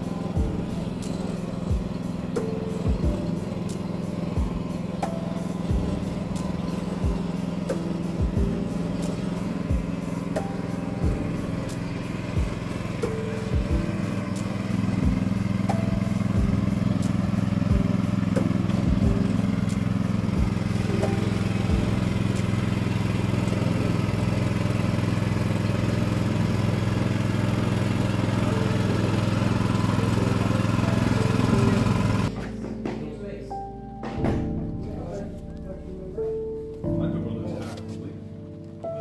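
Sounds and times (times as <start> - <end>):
small engine running: 0.0 - 32.6
knocks: 34.0 - 34.6.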